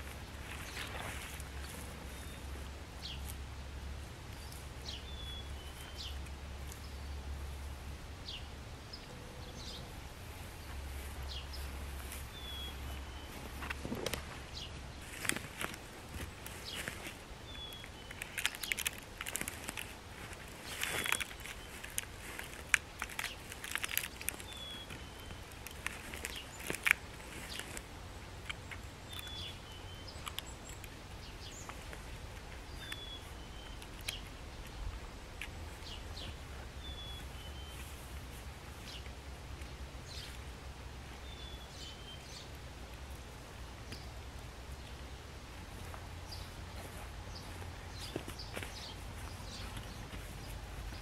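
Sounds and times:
cord scraping against bark: 10.4 - 39.2.

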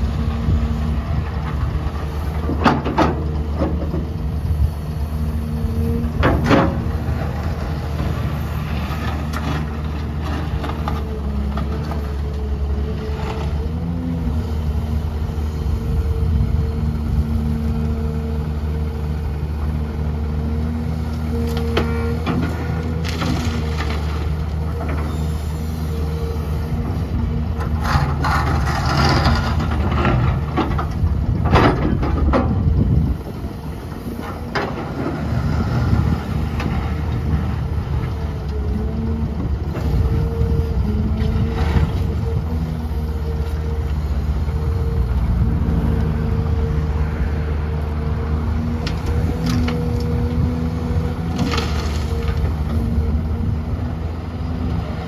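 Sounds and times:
excavator diesel engine running: 0.0 - 55.0
rushing scraping clatter: 27.7 - 32.5.

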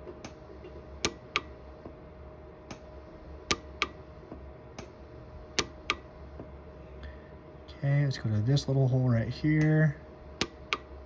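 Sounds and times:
faint steady hum: 0.0 - 11.0
welder pulse snaps: 3.5 - 4.0, 5.6 - 6.1, 10.4 - 11.0.

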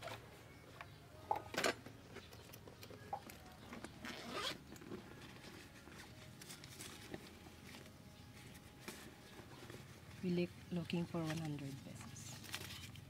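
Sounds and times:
zipper being pulled: 4.0 - 5.0.

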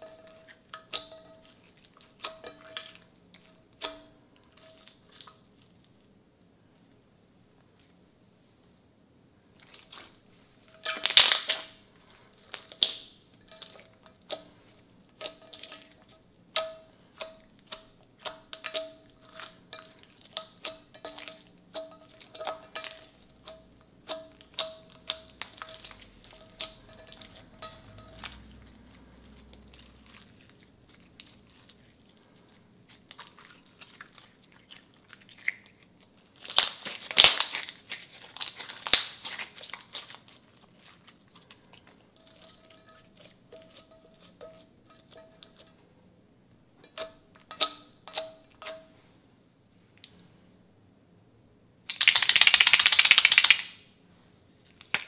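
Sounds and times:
slime crackling: 10.9 - 13.9, 22.1 - 44.4.

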